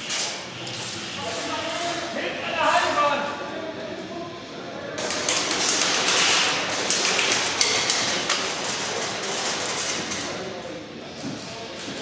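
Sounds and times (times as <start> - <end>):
pellets striking surfaces: 5.0 - 10.2.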